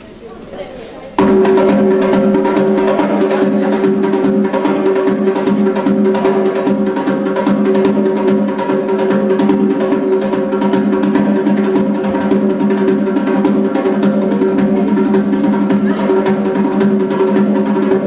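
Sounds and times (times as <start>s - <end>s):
hand drum beaten quickly: 1.2s - 18.0s.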